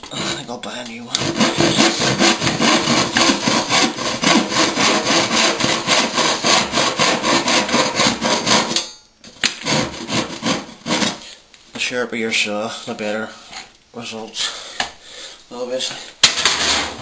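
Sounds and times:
handsaw cutting wood: 1.2s - 8.8s, 9.5s - 11.2s, 16.4s - 17.0s.

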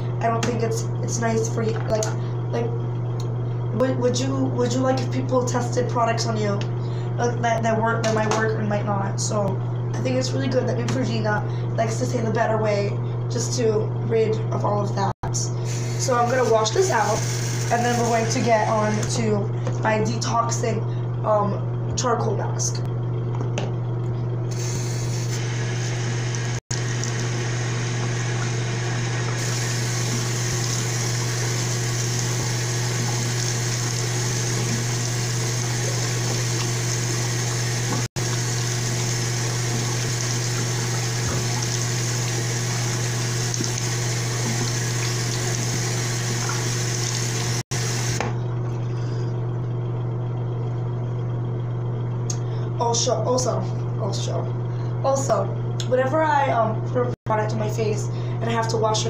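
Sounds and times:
sink tap running: 15.6s - 19.4s, 24.5s - 48.3s.

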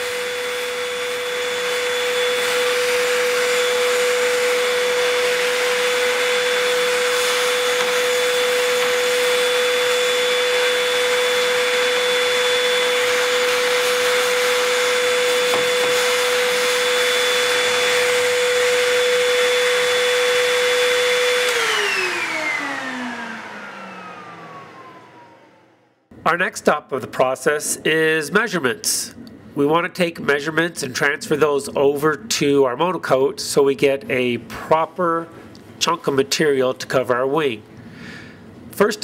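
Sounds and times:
vacuum cleaner whining: 0.0s - 26.1s.

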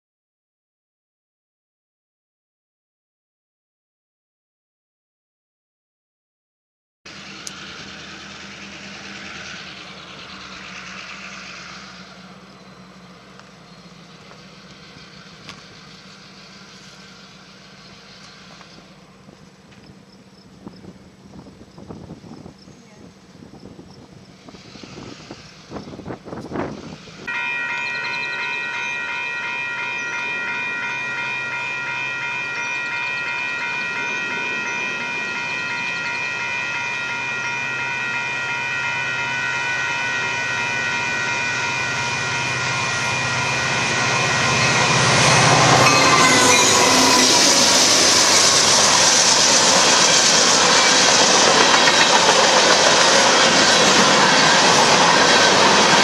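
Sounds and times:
low engine hum: 7.1s - 27.3s
train horn long blast: 29.4s - 48.9s
freight cars clattering on rails: 44.4s - 56.0s.

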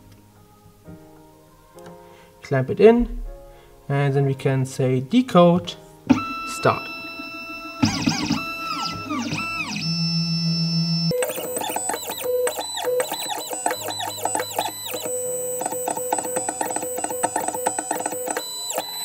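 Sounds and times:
plucked guitar notes: 6.1s - 9.8s
synthesizer tones: 6.1s - 19.0s.

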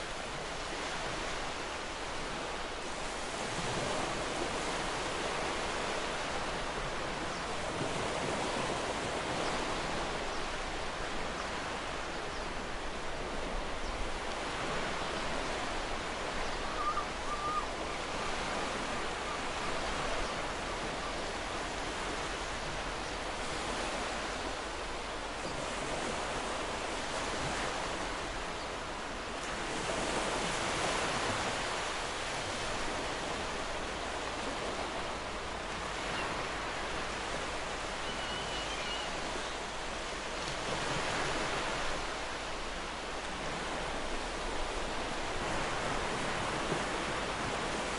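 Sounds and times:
ocean waves washing: 0.0s - 47.9s.

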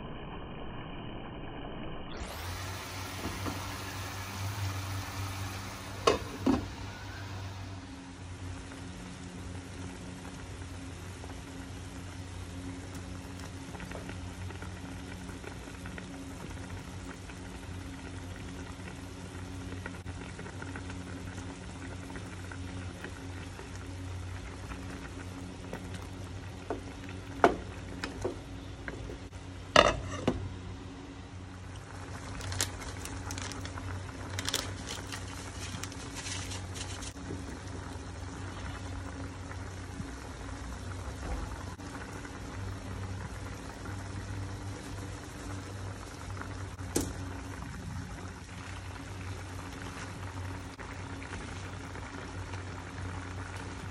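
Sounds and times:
steady low hum: 0.0s - 53.9s
broth simmering and bubbling: 1.7s - 53.9s.

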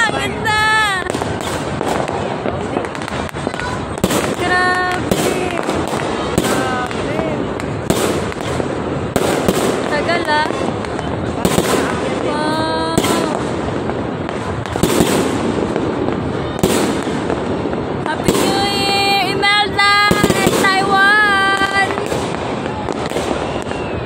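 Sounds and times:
continuous crackling: 0.0s - 24.0s
firework bangs: 0.0s - 24.0s.

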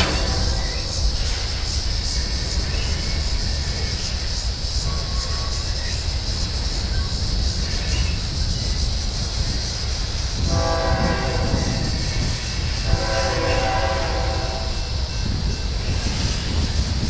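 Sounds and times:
freight train cars rumbling: 0.0s - 17.0s
locomotive air horn blasts: 10.4s - 11.8s, 12.8s - 14.9s.

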